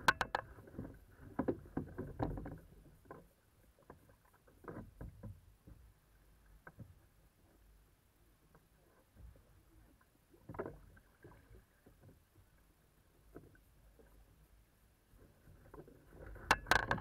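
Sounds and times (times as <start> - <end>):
gear knocking against hull: 0.0 - 0.6, 16.4 - 17.0.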